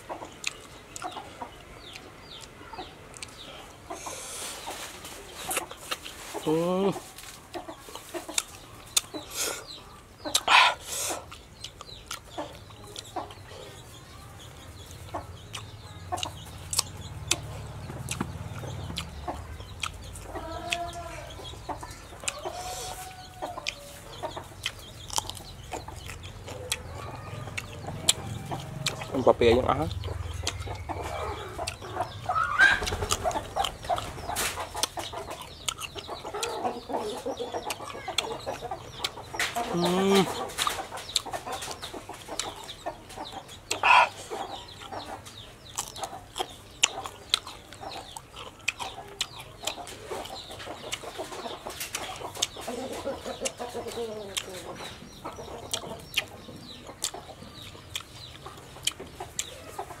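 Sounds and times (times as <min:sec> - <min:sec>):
chickens clucking: 0:00.0 - 1:00.0
crunching raw vegetables: 0:24.6 - 0:32.0, 0:45.7 - 0:50.3.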